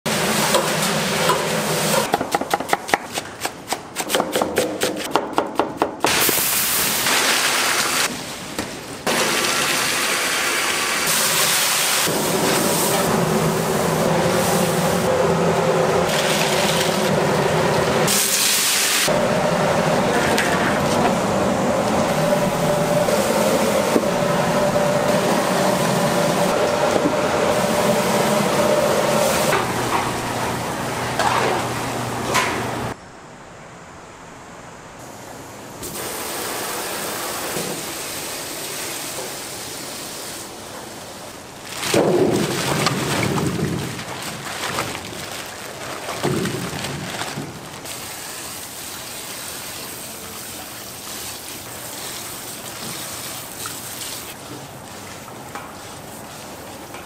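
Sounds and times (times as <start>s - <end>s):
steady machine hum: 12.1s - 18.1s, 19.1s - 35.8s.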